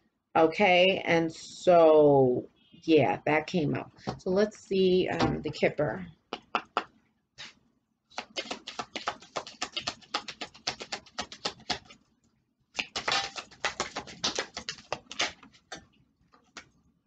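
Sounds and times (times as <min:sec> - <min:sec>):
cards being shuffled: 0:07.4 - 0:12.0, 0:12.8 - 0:16.7.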